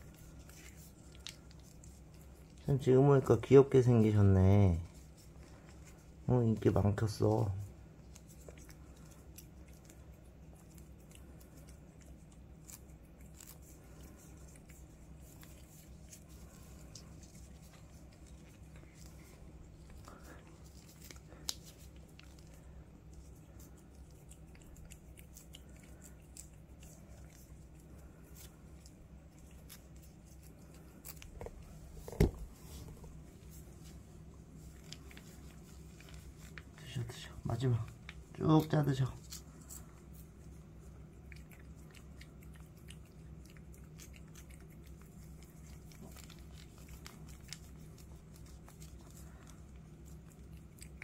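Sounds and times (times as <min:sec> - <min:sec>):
cat licking from a pouch: 0:00.0 - 0:51.0
low steady hum: 0:00.0 - 0:51.0.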